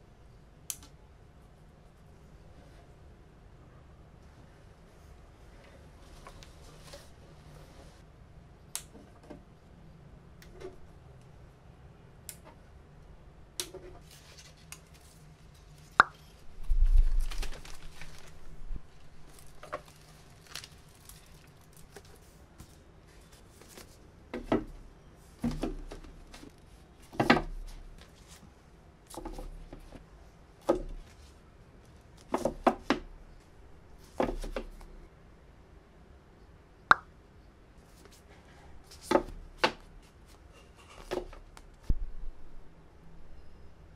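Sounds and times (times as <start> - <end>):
books knocking on shelf: 25.4 - 26.2.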